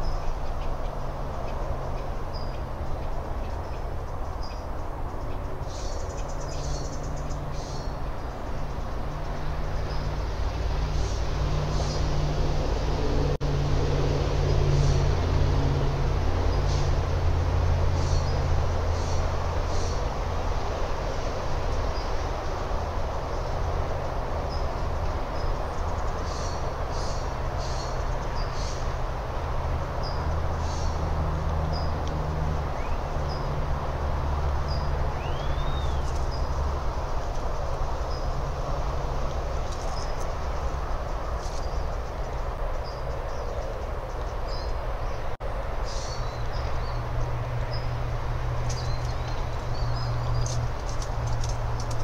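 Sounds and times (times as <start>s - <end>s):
birds chirping: 0.0s - 12.4s, 29.9s - 32.0s, 34.6s - 38.4s, 39.6s - 52.0s.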